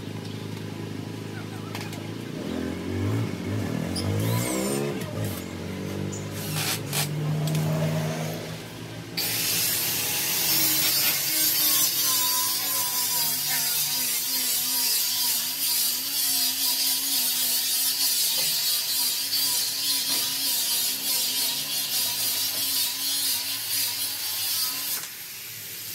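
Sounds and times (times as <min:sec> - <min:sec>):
electric power tool hissing: 0:06.3 - 0:08.6, 0:09.2 - 0:25.9.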